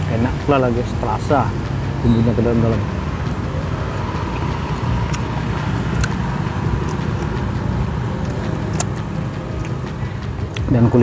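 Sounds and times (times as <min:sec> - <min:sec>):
road traffic rumble: 0:00.0 - 0:11.0
chewing clicks: 0:03.3 - 0:10.7.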